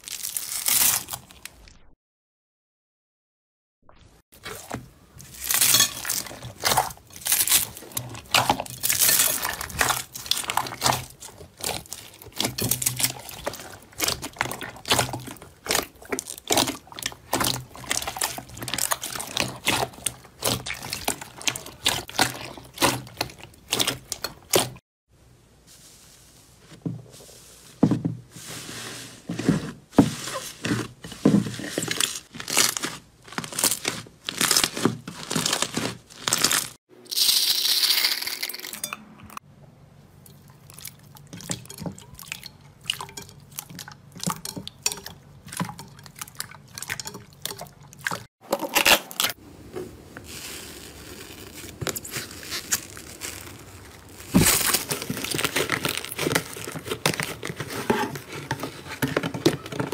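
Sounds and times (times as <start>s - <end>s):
slime squishing: 4.4s - 24.8s, 27.2s - 36.8s, 40.3s - 59.9s
slime crackling and popping: 5.3s - 24.8s, 32.0s - 36.8s, 50.2s - 57.5s.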